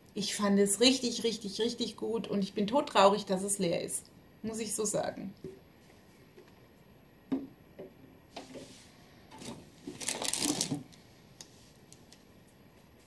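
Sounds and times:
bottles rustling and rattling: 9.3s - 10.9s.

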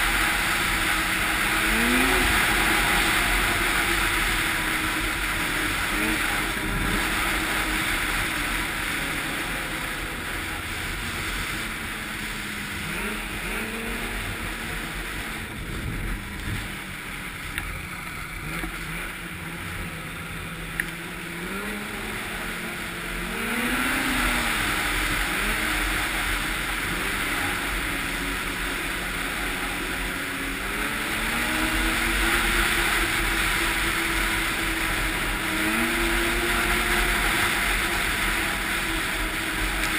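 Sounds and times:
snowmobile engine running: 0.0s - 39.9s
wind on microphone: 12.9s - 17.4s.

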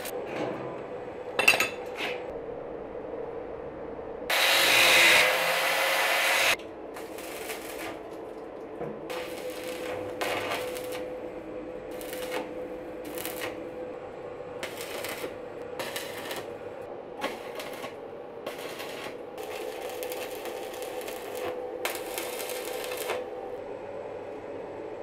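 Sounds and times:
steady hum: 0.0s - 5.3s, 6.4s - 25.0s
welding arc crackling: 4.3s - 8.4s, 9.1s - 11.3s, 11.9s - 13.7s, 14.6s - 23.3s.

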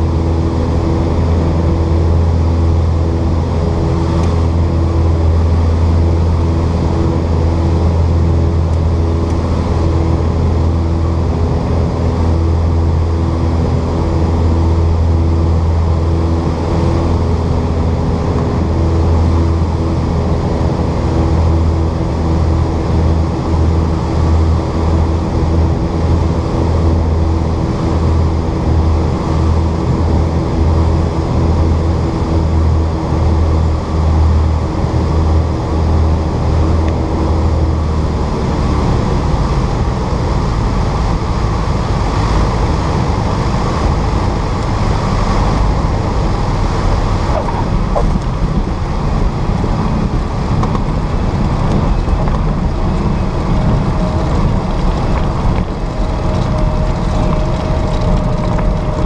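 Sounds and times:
propeller aircraft engines droning: 0.0s - 59.0s
rushing airflow: 34.0s - 59.0s
wheels rolling on runway: 41.9s - 59.0s.

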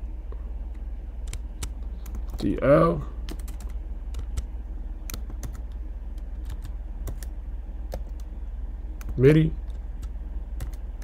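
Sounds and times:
steady low hum: 0.0s - 11.0s
computer keyboard typing: 1.2s - 2.6s, 3.2s - 7.3s, 7.9s - 8.3s, 9.0s - 11.0s.

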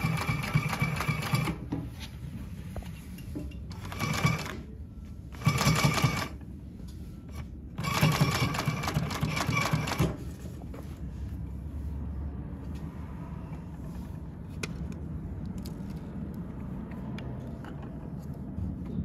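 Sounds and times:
sewing machine stitching heavy fabric: 0.0s - 1.6s, 3.7s - 4.6s, 5.3s - 6.4s, 7.3s - 10.3s.

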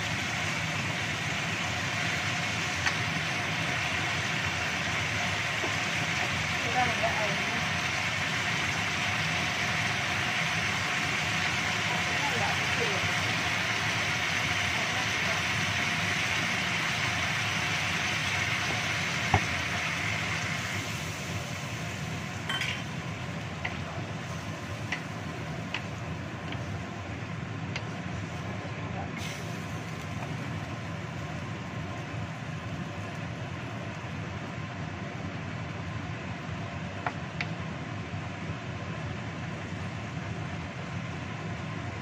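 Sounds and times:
food hissing in a wok: 0.0s - 34.6s
spatula tapping wok: 22.5s - 23.9s, 24.8s - 26.8s, 27.7s - 28.0s.

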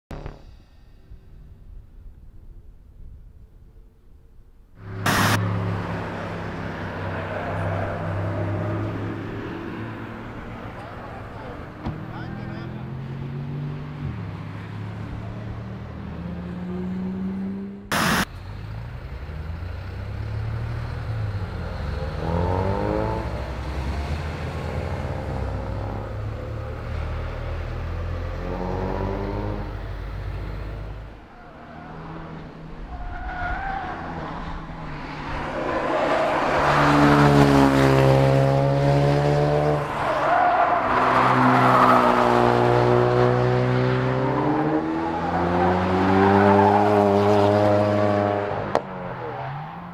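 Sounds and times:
sharp crack: 5.0s - 5.4s, 17.9s - 18.3s
car engine revving past: 20.4s - 31.1s, 34.0s - 49.1s.

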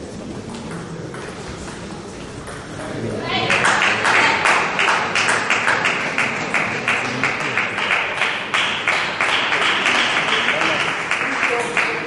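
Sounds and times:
spectators clapping in rhythm: 3.4s - 12.0s.

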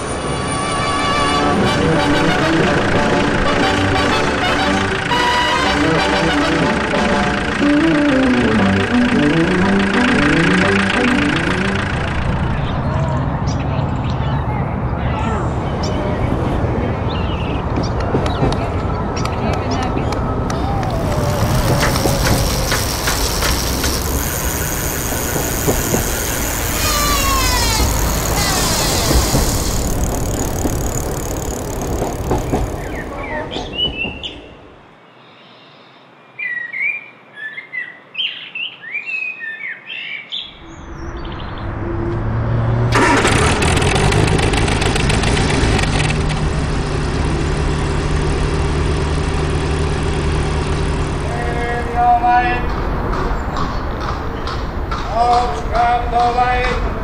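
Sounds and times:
vehicles passing: 0.0s - 35.0s, 40.5s - 57.0s
birds chirping: 2.6s - 42.2s.

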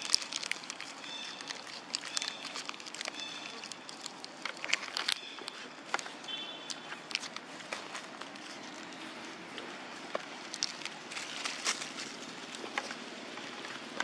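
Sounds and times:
monkeys chirping: 0.0s - 4.0s
plastic wrappers crinkling: 0.0s - 14.0s.

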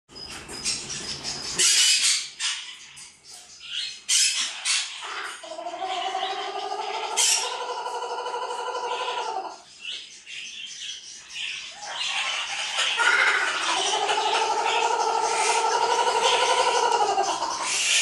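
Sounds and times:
cockatoo screeches: 11.9s - 18.0s.

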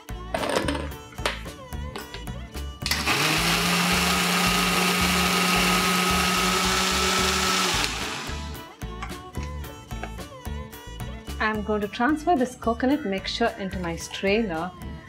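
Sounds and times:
background music: 0.0s - 15.0s
mixer grinder motor grinding: 2.8s - 8.6s.

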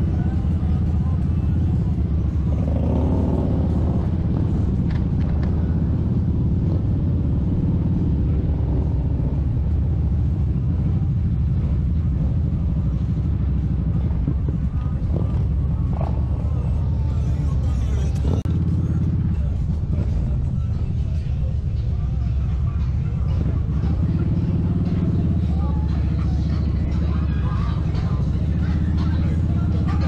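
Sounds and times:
motorcycle engine rumbling: 0.0s - 30.0s
wind rush on microphone: 13.6s - 17.0s.

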